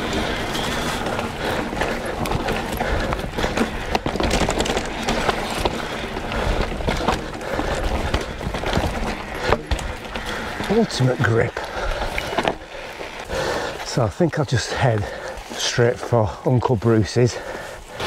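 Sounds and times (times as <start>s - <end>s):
bike knocks and rattles: 0.0s - 12.6s
bike tyres rolling over dirt: 0.0s - 18.0s.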